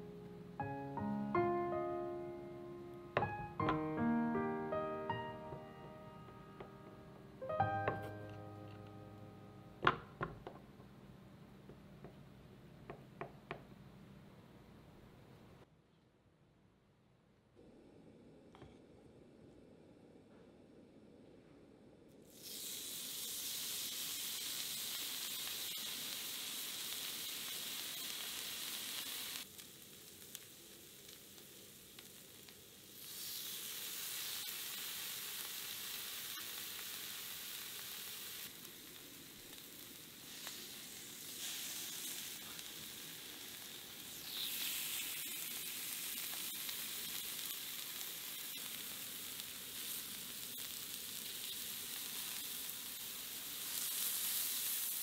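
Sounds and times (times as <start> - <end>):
pork sizzling on grill pan: 22.3 - 55.0.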